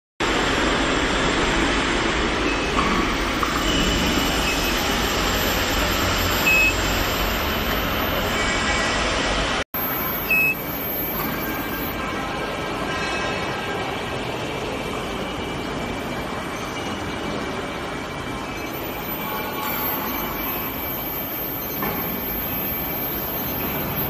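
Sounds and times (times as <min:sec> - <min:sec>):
machine running: 0:00.5 - 0:12.0, 0:18.7 - 0:24.0
faint high steady tone: 0:03.6 - 0:08.6, 0:09.8 - 0:12.0, 0:18.6 - 0:24.0
short high electronic beeps: 0:03.7 - 0:08.4, 0:09.8 - 0:12.0, 0:18.7 - 0:24.0.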